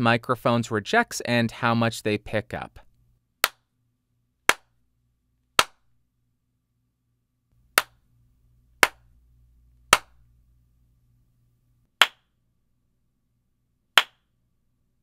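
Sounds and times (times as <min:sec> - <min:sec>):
hand claps with reverb: 0:08.8 - 0:09.0, 0:12.0 - 0:12.3, 0:14.0 - 0:14.2.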